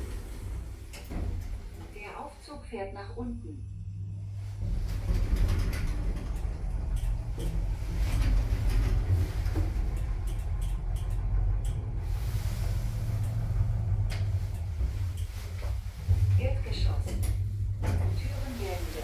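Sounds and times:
lift car low rumble: 0:00.0 - 0:19.0
faint clicks: 0:05.4 - 0:15.6.

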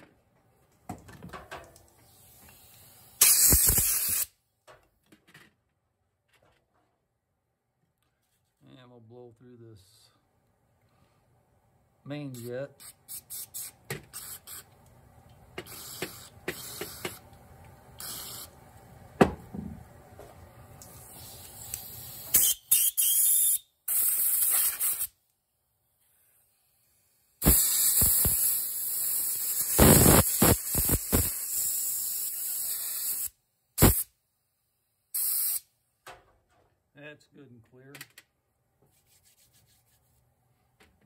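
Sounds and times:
compressed air hissing: 0:02.0 - 0:04.3, 0:12.8 - 0:14.7, 0:15.6 - 0:17.2, 0:18.0 - 0:18.5, 0:21.0 - 0:25.2, 0:26.2 - 0:34.1, 0:35.1 - 0:35.7.

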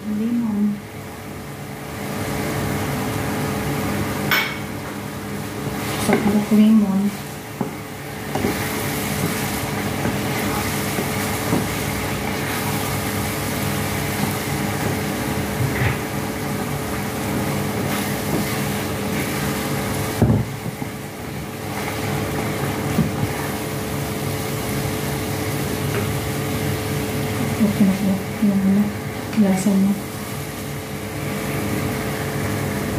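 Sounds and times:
steady mechanical hum: 0:00.0 - 0:32.9
wooden spatula scraping a pan: 0:08.2 - 0:20.9.

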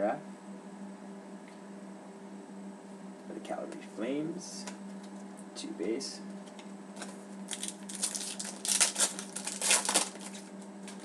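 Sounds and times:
foil wrapper tearing and crinkling: 0:07.0 - 0:11.0.

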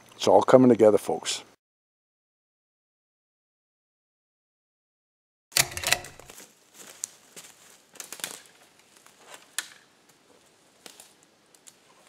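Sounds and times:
sharp click: 0:05.6 - 0:06.3
footsteps crunching dry leaves: 0:06.3 - 0:09.6.

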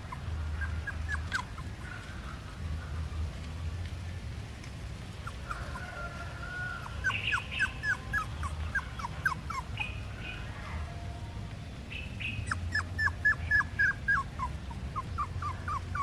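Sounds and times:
puppy whimpering: 0:00.0 - 0:01.8, 0:05.2 - 0:05.8, 0:06.8 - 0:10.0, 0:12.4 - 0:16.0.

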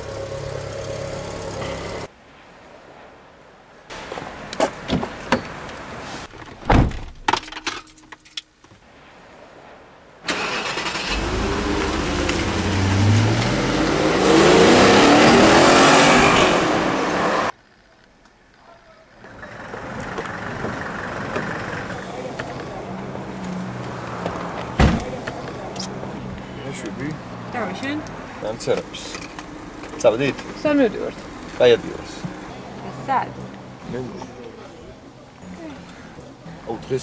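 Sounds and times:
car engine revving: 0:10.3 - 0:17.5.

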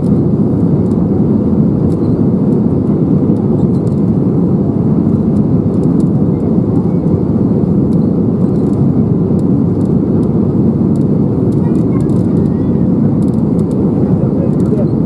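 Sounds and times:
airplane cabin rumble: 0:00.0 - 0:15.0.

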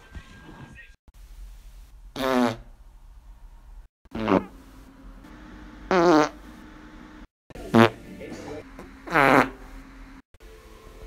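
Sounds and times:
man farting: 0:02.2 - 0:02.7, 0:04.1 - 0:04.6, 0:05.9 - 0:06.4, 0:07.7 - 0:08.0, 0:09.0 - 0:09.6.

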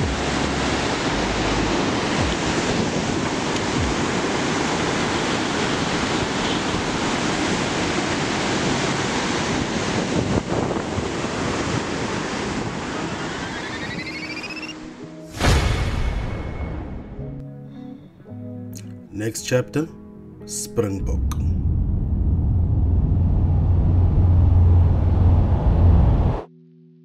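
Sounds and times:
waterfall rushing: 0:00.0 - 0:15.5
wind buffeting microphone: 0:01.8 - 0:14.2
rising tone: 0:13.2 - 0:17.4, 0:21.0 - 0:26.5.

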